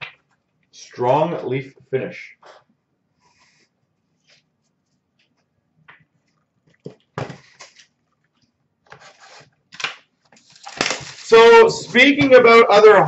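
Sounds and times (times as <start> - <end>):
wrapper crinkling as torn open: 10.4 - 11.4.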